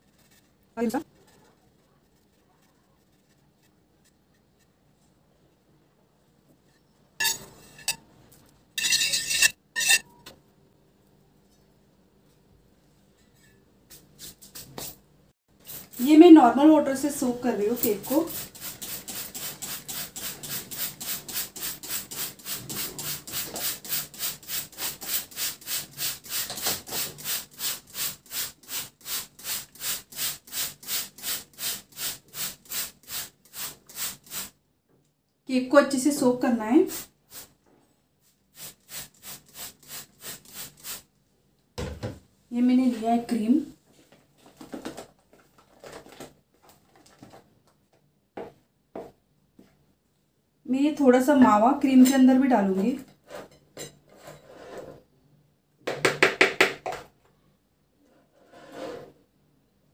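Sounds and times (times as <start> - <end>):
spatula stirring cream in a bowl: 0.0 - 4.7
spray bottle squirting water: 17.8 - 34.5, 38.6 - 41.1.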